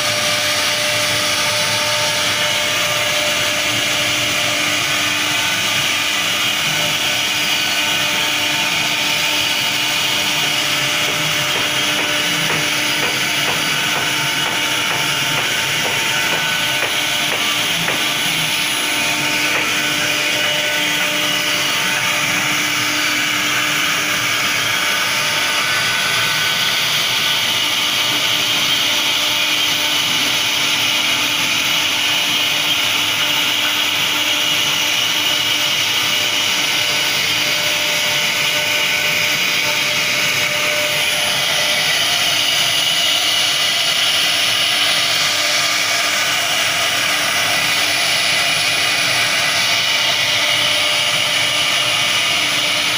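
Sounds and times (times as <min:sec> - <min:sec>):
router spindle whine: 0:00.0 - 0:52.9
bit cutting into wood: 0:07.2 - 0:22.1.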